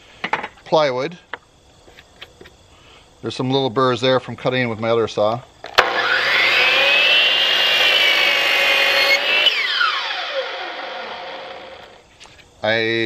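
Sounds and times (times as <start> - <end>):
mitre saw whining: 5.7 - 12.0
saw cutting through plywood: 5.8 - 12.0.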